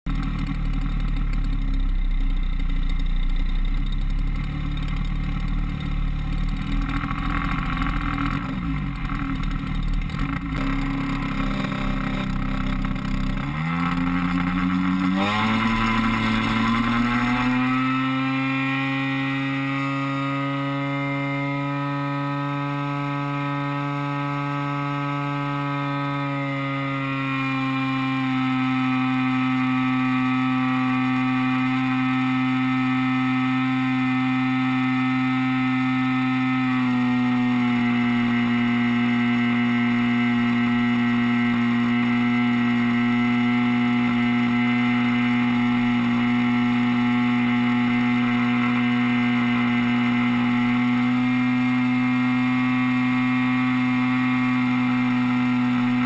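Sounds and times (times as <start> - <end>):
model plane engine revving: 0.2 - 56.0.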